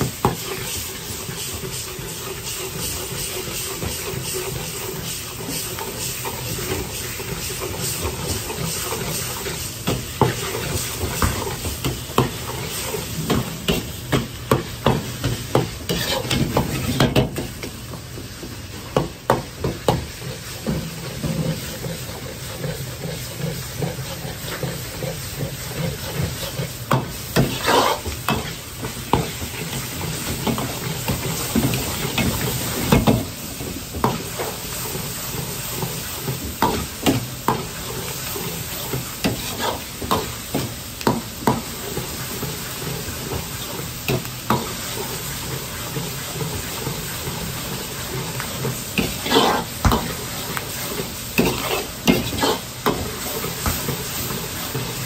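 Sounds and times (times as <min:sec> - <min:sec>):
meat sizzling in a wok: 0:00.0 - 0:55.0
metal ladle scraping a wok: 0:15.8 - 0:17.0, 0:27.4 - 0:28.6, 0:48.6 - 0:53.4.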